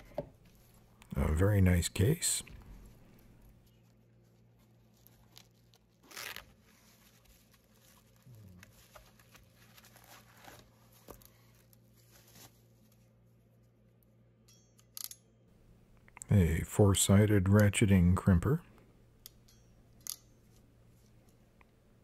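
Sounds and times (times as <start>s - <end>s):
bubble wrap crinkling: 3.6s - 13.1s.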